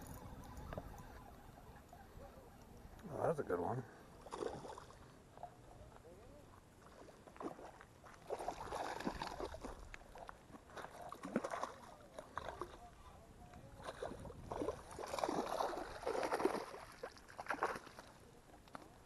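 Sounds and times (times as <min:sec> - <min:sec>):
fish splashing in water: 0:04.2 - 0:05.0, 0:06.9 - 0:12.8, 0:13.8 - 0:18.8.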